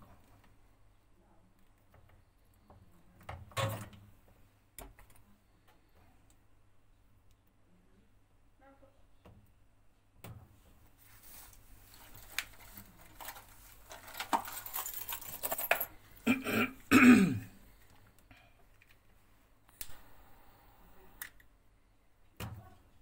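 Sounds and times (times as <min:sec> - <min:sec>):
wires and connectors handled: 0:11.0 - 0:15.9, 0:17.8 - 0:19.1
man coughing: 0:16.2 - 0:17.6.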